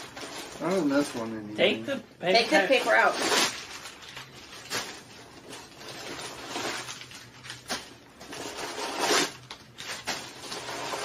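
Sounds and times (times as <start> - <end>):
paper rustling and crinkling: 2.8 - 11.0.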